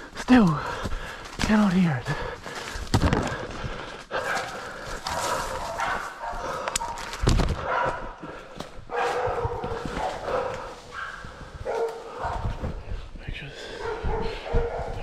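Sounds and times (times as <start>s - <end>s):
dog barking: 4.2s - 8.2s, 8.9s - 12.7s, 13.8s - 15.0s.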